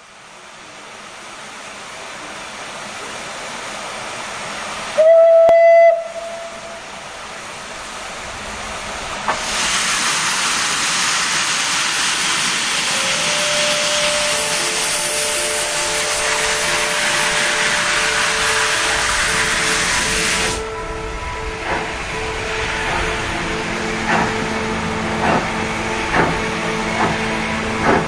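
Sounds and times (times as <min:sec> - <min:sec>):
steam hissing: 0:00.6 - 0:20.7
steam locomotive whistle: 0:05.0 - 0:06.9, 0:12.8 - 0:23.2.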